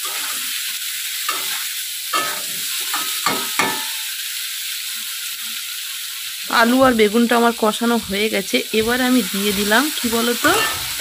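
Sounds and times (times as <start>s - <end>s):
vegetables sizzling in oil: 0.0s - 11.0s
metal spatula scraping: 1.2s - 4.1s, 6.6s - 11.0s.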